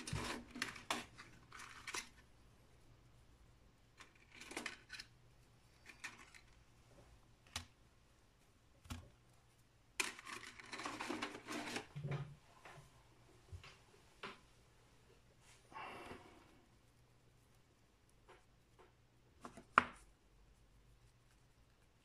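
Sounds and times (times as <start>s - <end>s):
plastic wire rustling and crackling: 0.0s - 2.3s, 3.9s - 7.8s, 8.4s - 12.8s.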